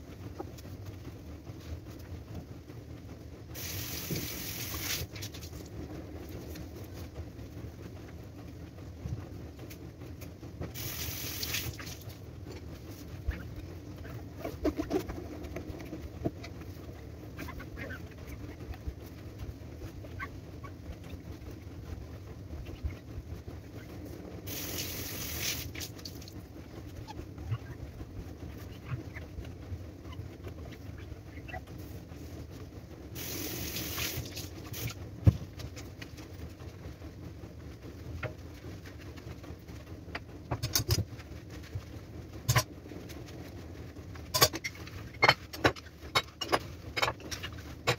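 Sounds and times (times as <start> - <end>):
steady low hum: 0.0 - 47.9
short hissing bursts: 3.6 - 5.1, 10.8 - 11.8, 24.5 - 25.7, 33.2 - 35.0.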